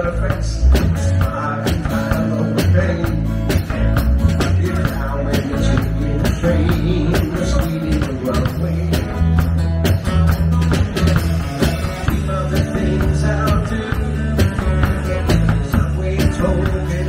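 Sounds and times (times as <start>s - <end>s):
bass line: 0.0s - 17.0s
rock and roll band playing: 0.0s - 17.0s
steady drum beat: 0.0s - 17.0s.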